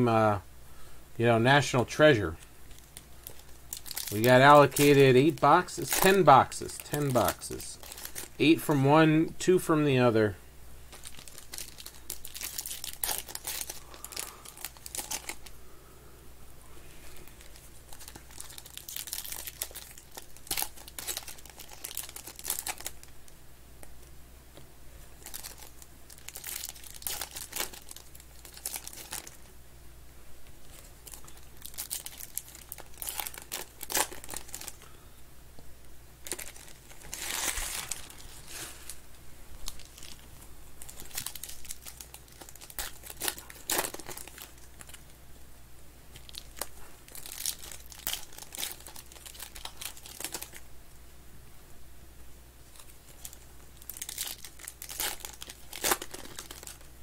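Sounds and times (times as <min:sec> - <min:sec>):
foil wrappers torn and crinkled: 0:02.7 - 0:08.9, 0:10.9 - 0:15.5, 0:17.1 - 0:23.1, 0:25.2 - 0:29.5, 0:30.6 - 0:34.9, 0:36.2 - 0:39.0, 0:39.6 - 0:45.1, 0:46.1 - 0:50.6, 0:52.7 - 0:56.9.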